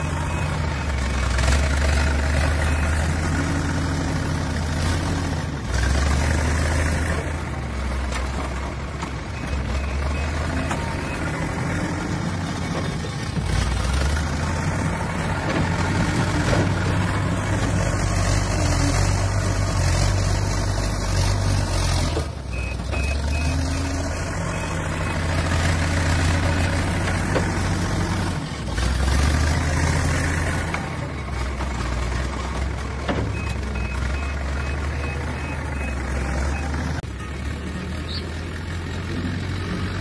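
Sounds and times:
reversing alarm beeping: 0:00.0 - 0:01.2, 0:22.5 - 0:25.5, 0:33.3 - 0:37.4
diesel engine working under load: 0:00.0 - 0:40.0.

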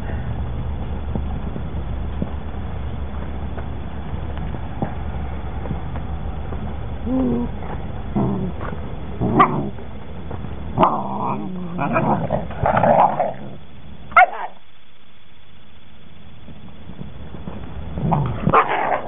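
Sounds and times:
puppies growling and barking: 0:07.4 - 0:09.9, 0:10.8 - 0:14.6, 0:18.0 - 0:19.0.

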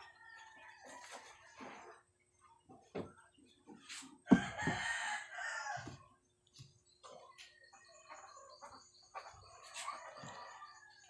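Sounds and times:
rooster crowing: 0:04.4 - 0:05.9.

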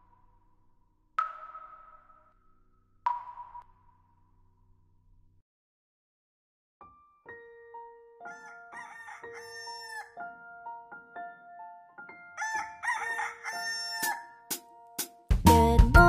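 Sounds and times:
rooster crowing: 0:08.2 - 0:10.2, 0:12.4 - 0:14.5
upbeat children's song music: 0:14.4 - 0:16.0.

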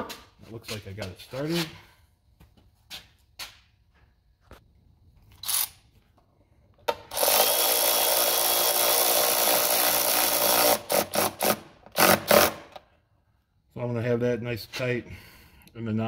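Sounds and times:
cordless power drill running: 0:07.1 - 0:12.6.

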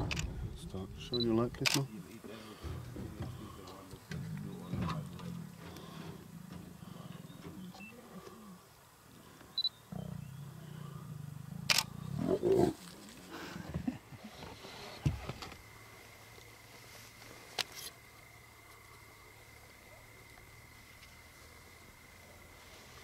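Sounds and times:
low steady hum: 0:00.0 - 0:23.0
lions snarling and growling: 0:02.7 - 0:08.7, 0:09.8 - 0:13.6.

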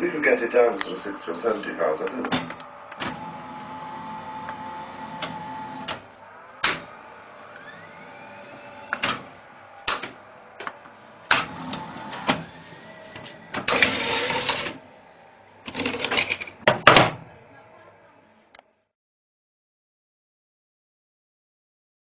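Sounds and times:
motor whine rising in pitch: 0:02.5 - 0:13.5
mechanical clicks and clunks: 0:07.6 - 0:12.5, 0:13.1 - 0:14.8.

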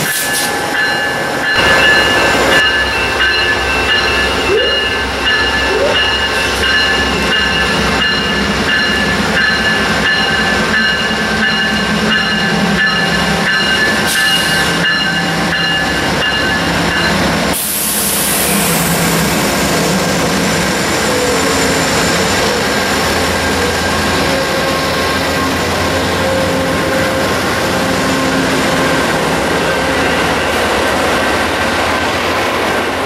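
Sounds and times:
diesel locomotive engines: 0:00.0 - 0:33.0
loud hiss: 0:17.5 - 0:19.6.

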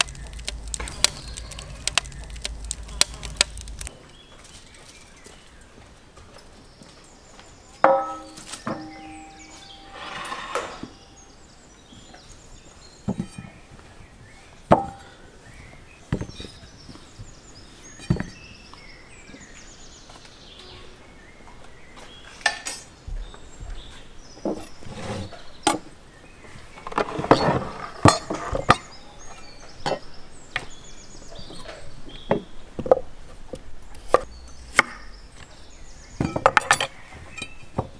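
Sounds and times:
potatoes dropping into metal pan: 0:00.0 - 0:03.9.

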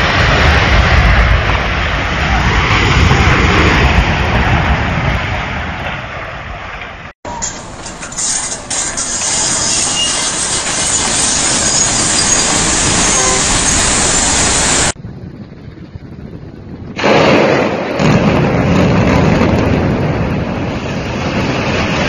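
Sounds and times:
building collapsing rumble: 0:00.0 - 0:07.8, 0:10.4 - 0:22.0
demolition site noise: 0:00.0 - 0:22.0.

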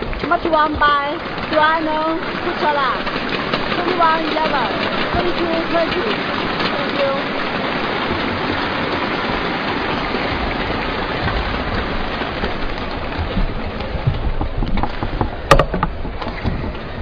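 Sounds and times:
sharp knock: 0:15.5 - 0:15.9.

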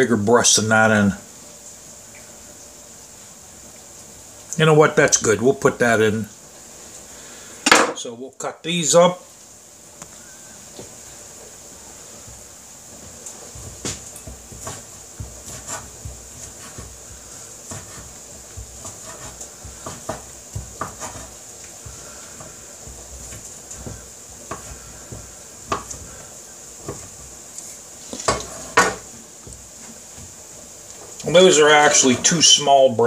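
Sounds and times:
knife chopping on wooden board: 0:13.6 - 0:27.3, 0:28.1 - 0:29.6.

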